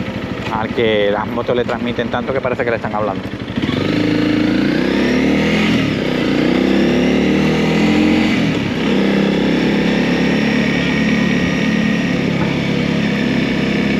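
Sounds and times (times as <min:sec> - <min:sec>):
motorcycle engine revving: 0:00.0 - 0:13.9.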